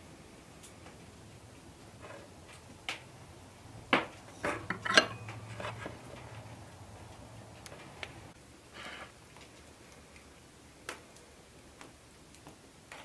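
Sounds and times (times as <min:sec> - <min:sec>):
tin pans and spoon clinking: 0:04.4 - 0:06.2.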